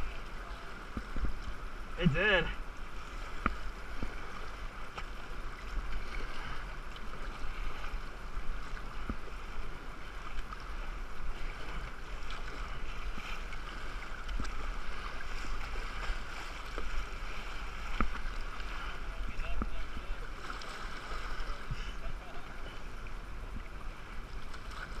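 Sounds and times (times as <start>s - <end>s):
paddle splashing: 0.0s - 25.0s
river current lapping against hull: 0.0s - 25.0s.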